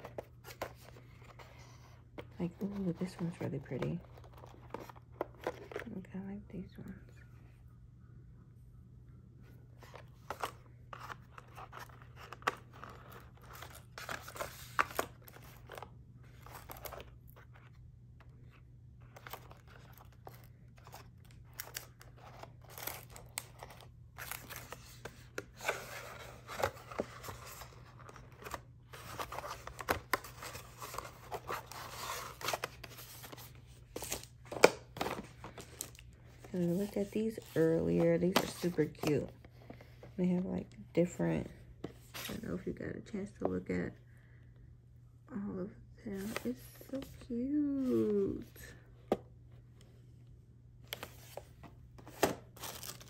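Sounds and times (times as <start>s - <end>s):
plastic packaging crinkling: 52.1s - 53.0s.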